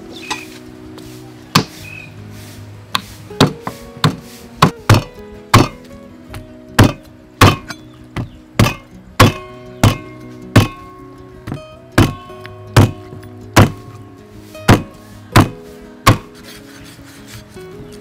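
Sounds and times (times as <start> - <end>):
background music: 0.0 - 18.0
meat cleaver chopping bone: 3.4 - 5.8, 6.8 - 7.8, 8.6 - 10.0, 10.6 - 10.8, 12.0 - 12.2, 13.6 - 13.8, 14.7 - 16.3.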